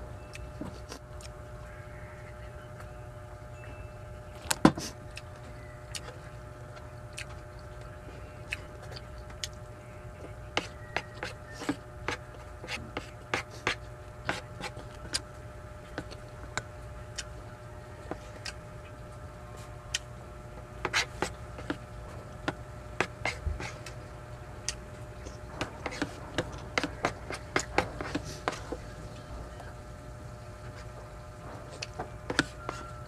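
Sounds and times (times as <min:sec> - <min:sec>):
faint hum: 0:00.0 - 0:33.0
chewing: 0:04.8 - 0:09.6.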